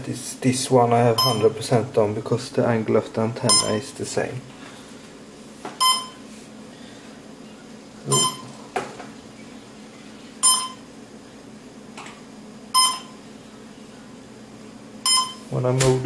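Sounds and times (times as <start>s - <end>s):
short electronic beep: 1.2s - 1.5s, 3.5s - 3.8s, 8.1s - 8.5s, 10.4s - 10.8s, 12.8s - 13.1s, 15.1s - 15.4s.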